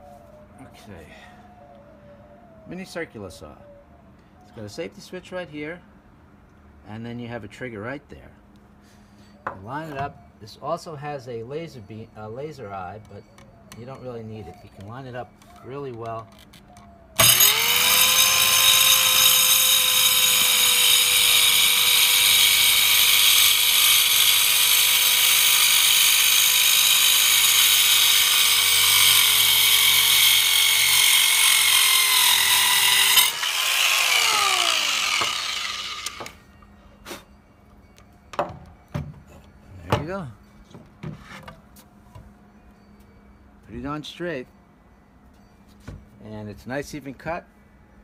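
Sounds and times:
circular saw cutting wood: 0:17.2 - 0:36.4.

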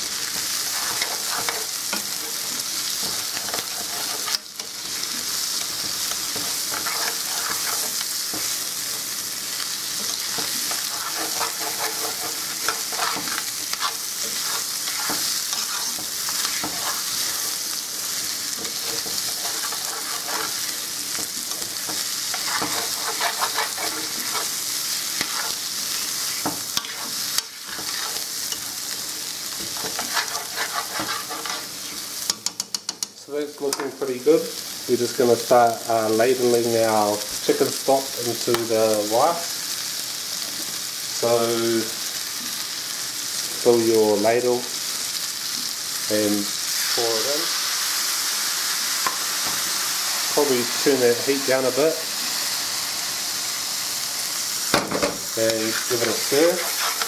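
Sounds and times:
rice sizzling in a pan: 0:00.0 - 0:57.0
spoon scraping a pan: 0:00.3 - 0:08.6, 0:10.0 - 0:28.9, 0:29.5 - 0:33.1, 0:55.5 - 0:57.0.

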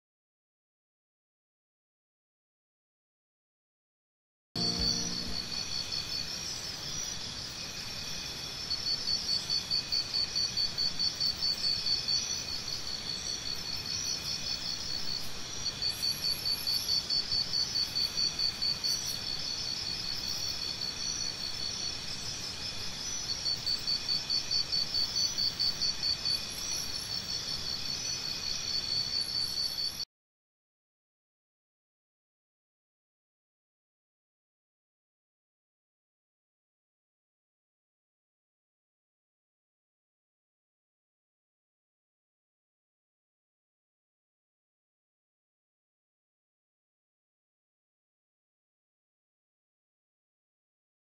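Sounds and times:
insects trilling: 0:04.6 - 0:30.0.

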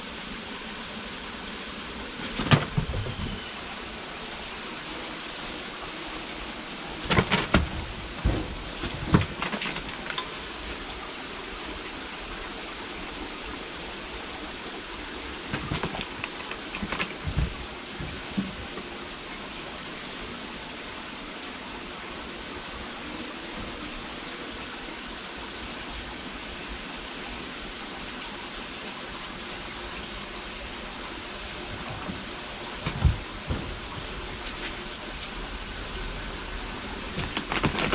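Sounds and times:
kittens scrambling on climbing frame: 0:15.5 - 0:18.8, 0:37.2 - 0:37.9.

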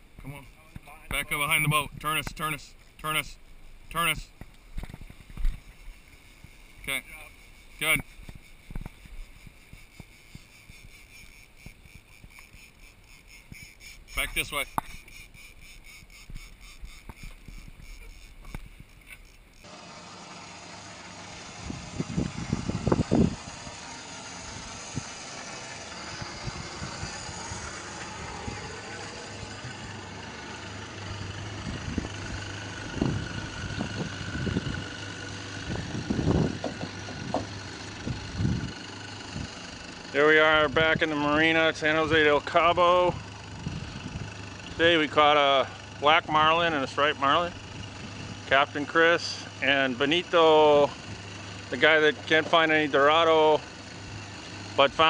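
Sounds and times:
boat engines humming: 0:00.0 - 0:55.0
outboard motors idling: 0:00.0 - 0:55.0
wind buffeting microphone: 0:21.6 - 0:23.8, 0:26.0 - 0:28.8, 0:31.2 - 0:35.0, 0:35.6 - 0:39.6, 0:43.5 - 0:44.4
dull thumps: 0:36.3 - 0:37.5.

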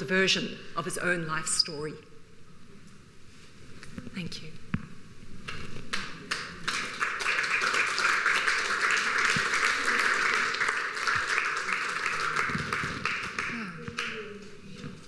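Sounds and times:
audience applauding: 0:05.9 - 0:14.4.

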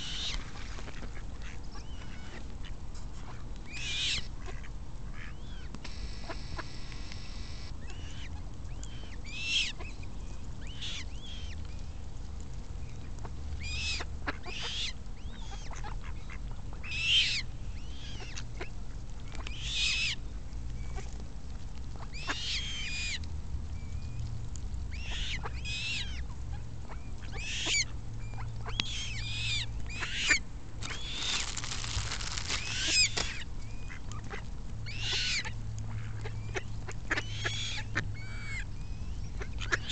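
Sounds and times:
coots calling: 0:28.7 - 0:34.0.

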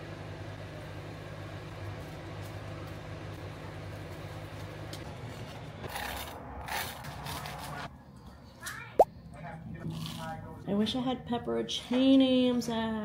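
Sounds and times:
knife sawing through toasted bread: 0:05.9 - 0:07.9.

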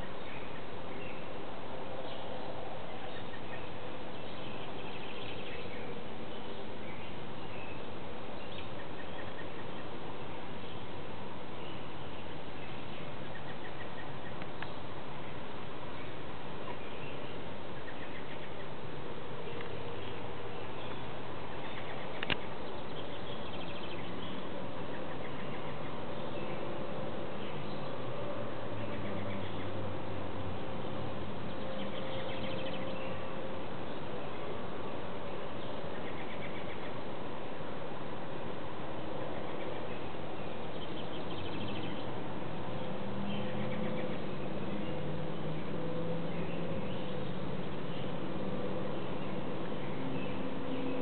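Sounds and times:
faint birdsong: 0:00.0 - 0:51.0
steady background hiss: 0:00.0 - 0:51.0.

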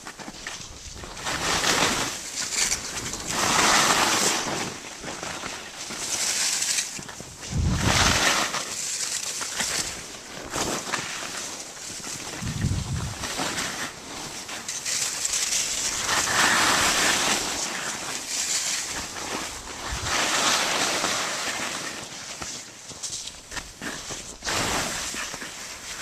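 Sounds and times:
skis scraping over snow: 0:00.0 - 0:26.0
low rumble: 0:12.4 - 0:13.2.

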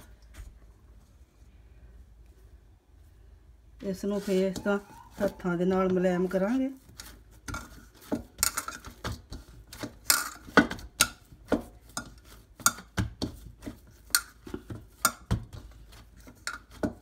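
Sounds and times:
hands kneading dough: 0:00.0 - 0:17.0
steel bowl knocking and scraping: 0:07.0 - 0:17.0.

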